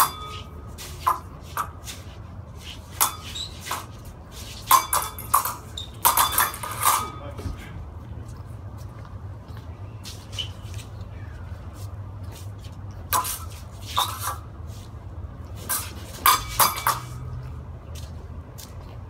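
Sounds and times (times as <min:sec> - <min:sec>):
steel swords clashing: 0:00.0 - 0:01.7, 0:02.9 - 0:03.9, 0:04.5 - 0:07.2, 0:15.6 - 0:17.3.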